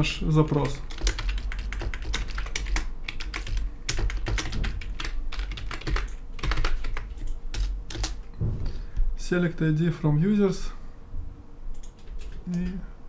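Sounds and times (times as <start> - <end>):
fast keyboard typing: 0.3 - 8.3, 11.8 - 12.4.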